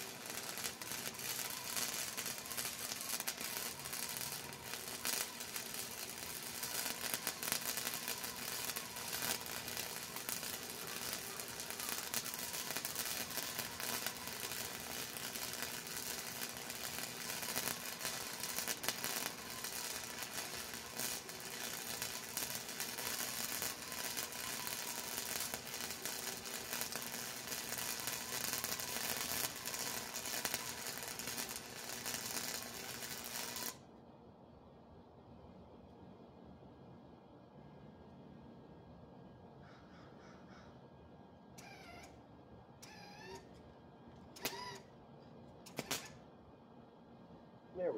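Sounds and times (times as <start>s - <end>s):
welding arc crackling: 0.0s - 33.8s, 45.7s - 46.2s.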